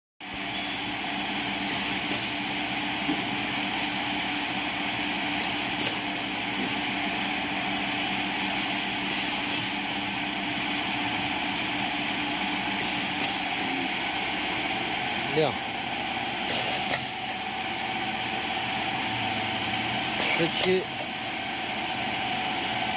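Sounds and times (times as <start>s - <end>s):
dough machine motor hum: 0.2s - 22.9s
pneumatic cutter air hisses: 3.7s - 4.6s, 5.3s - 6.2s, 8.5s - 10.0s, 12.8s - 14.1s, 16.4s - 18.0s, 20.2s - 20.8s.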